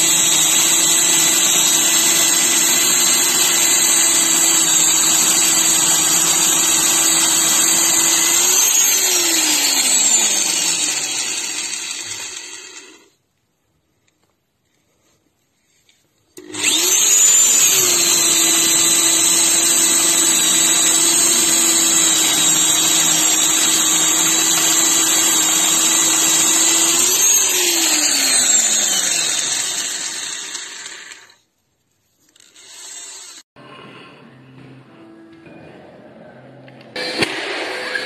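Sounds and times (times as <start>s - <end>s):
electric drill boring into wood: 0.0s - 13.2s, 16.4s - 31.4s, 32.4s - 33.5s.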